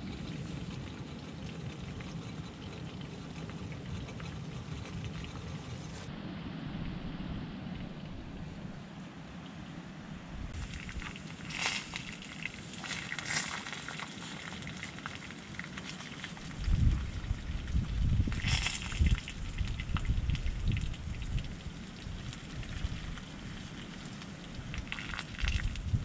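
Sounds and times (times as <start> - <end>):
uneven low rumbling: 0.0 - 8.9
fire crackling and popping: 10.5 - 26.0.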